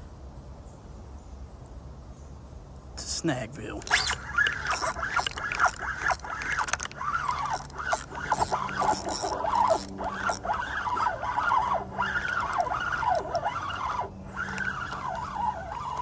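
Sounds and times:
fishing reel whine: 3.8s - 16.0s
light clicking of reel: 3.8s - 16.0s.

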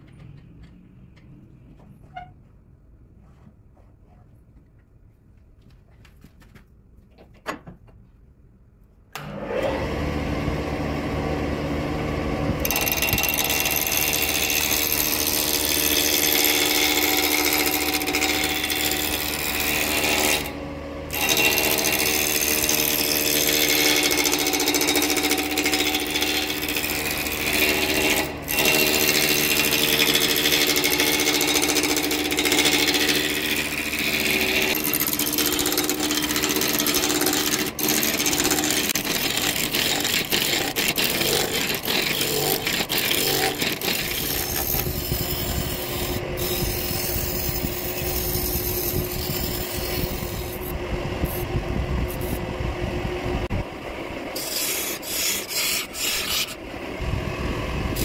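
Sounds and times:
lathe motor humming: 9.2s - 51.5s
gouge scraping spinning wood: 12.6s - 52.4s, 54.4s - 56.6s.

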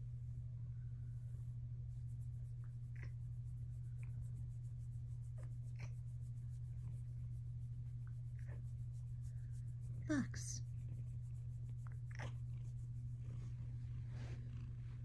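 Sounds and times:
steady low hum: 0.0s - 15.0s
hand rubbing cat fur: 1.1s - 15.0s
faint squeaks or rustles: 12.0s - 15.0s.

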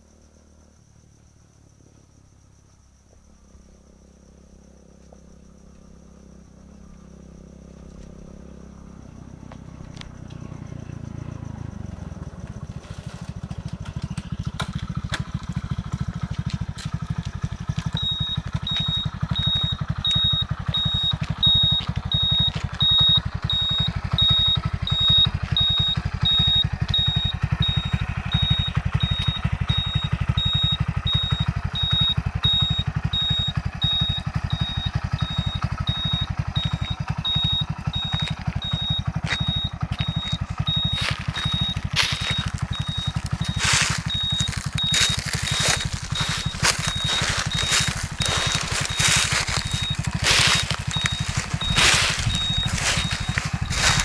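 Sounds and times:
motorcycle engine idling: 0.0s - 54.0s
high-pitched beep: 17.9s - 54.0s.

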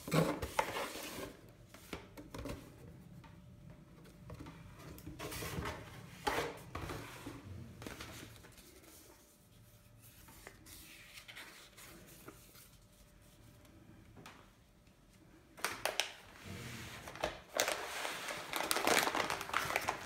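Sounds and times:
plastic air-cushion wrap rustling: 15.7s - 20.0s
paper leaflets rustling: 17.0s - 20.0s.

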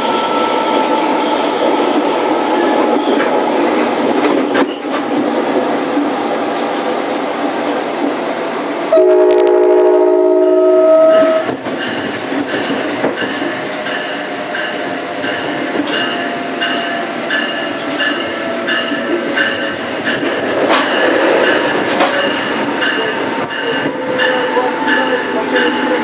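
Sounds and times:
moving train running noise: 0.0s - 26.0s
train horn chord: 8.9s - 11.6s
high-pitched rhythmic train beat: 10.4s - 26.0s.

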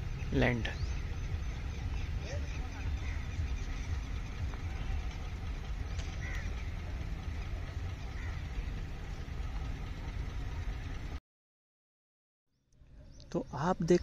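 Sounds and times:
low outdoor rumble: 0.0s - 11.2s
short bird calls: 0.7s - 5.1s, 5.9s - 6.8s.

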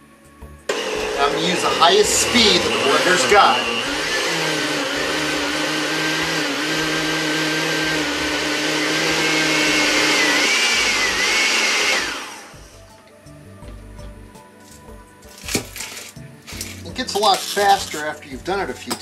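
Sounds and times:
blender motor whining: 0.7s - 12.8s.

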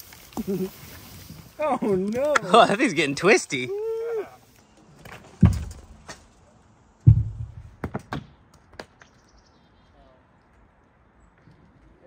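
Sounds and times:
heavy dull thuds: 7.0s - 8.1s
sharp knocks: 7.0s - 9.0s.

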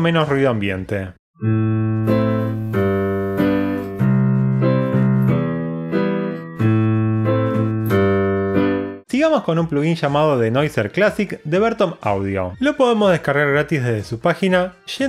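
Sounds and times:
solo piano: 1.4s - 9.0s.

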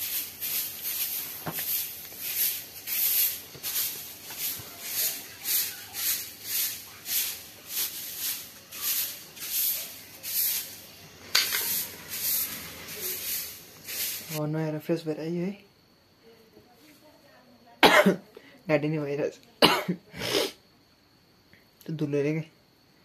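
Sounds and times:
broom sweeping straw: 0.0s - 14.4s.

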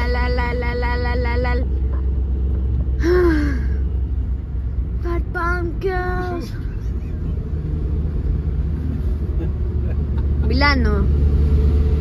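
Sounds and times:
child's voice: 0.0s - 1.7s, 5.0s - 6.6s
van engine and road noise: 0.0s - 12.0s.

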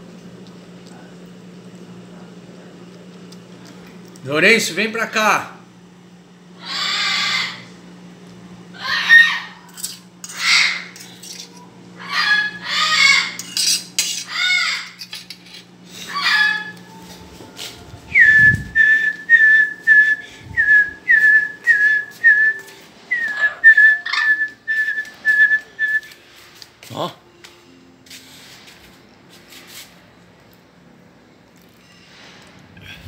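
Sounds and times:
parrot squawking: 6.6s - 7.8s, 8.7s - 11.3s, 12.0s - 15.1s, 15.9s - 16.8s, 23.2s - 24.5s.

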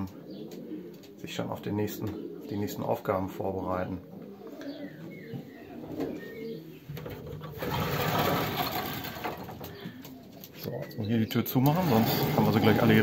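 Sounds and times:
pigeons cooing: 0.0s - 13.0s
loud rustling: 7.5s - 10.0s, 11.7s - 13.0s.

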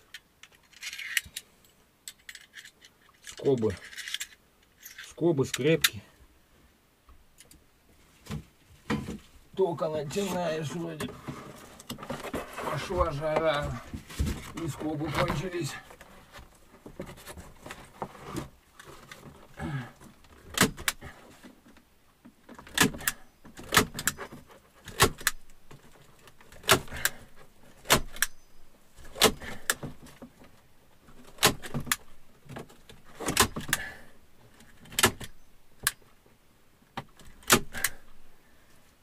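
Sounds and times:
handling noise: 8.0s - 38.0s.

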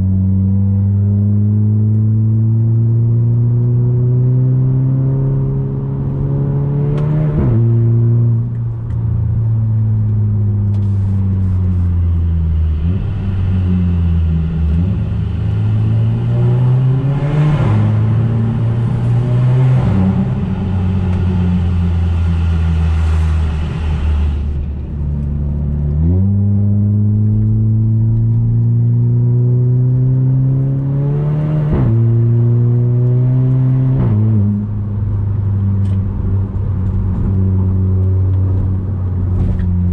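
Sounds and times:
car engine accelerating: 0.0s - 39.9s.

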